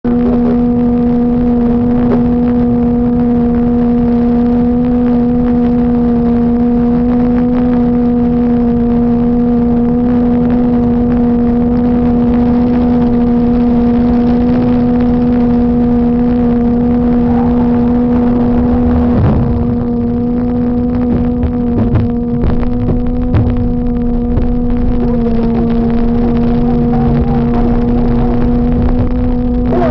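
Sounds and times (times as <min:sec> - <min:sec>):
electrical buzz: 0:00.0 - 0:29.9
highway traffic rumble: 0:00.0 - 0:29.9.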